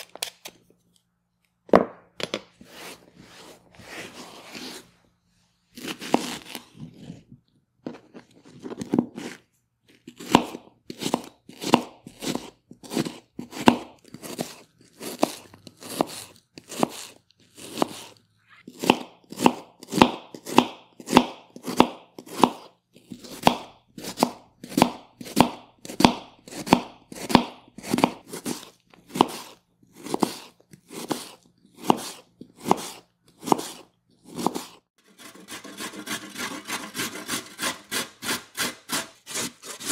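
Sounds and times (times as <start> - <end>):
knife chopping onion on board: 5.8 - 6.6, 10.2 - 18.1, 18.7 - 39.9.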